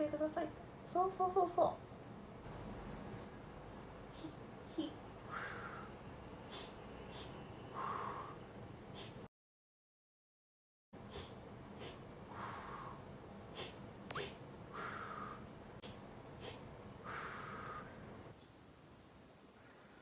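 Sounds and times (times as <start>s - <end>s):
person breathing sharply: 5.2s - 9.3s, 11.1s - 18.0s.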